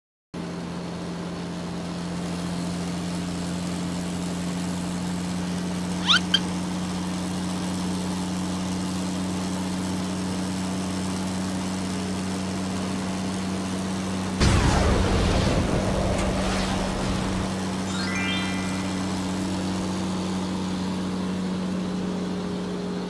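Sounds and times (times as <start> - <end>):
cartoon truck engine hum: 5.6 - 9.3, 14.2 - 23.0
short rising squeaks: 6.0 - 6.5, 17.1 - 20.0.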